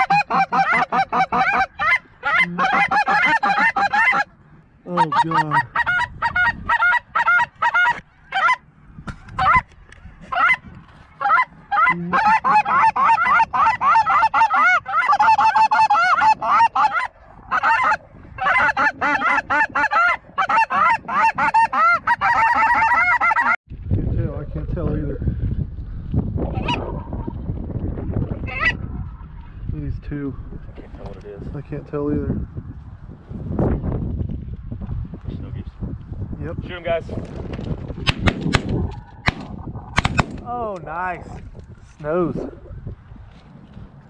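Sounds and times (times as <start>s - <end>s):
geese honking: 0.0s - 8.6s, 9.3s - 23.6s.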